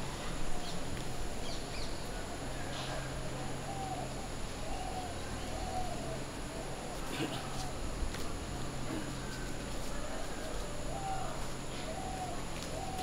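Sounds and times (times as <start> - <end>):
steady low hum: 0.0 - 13.0
birds whistling and chirping: 11.0 - 13.0.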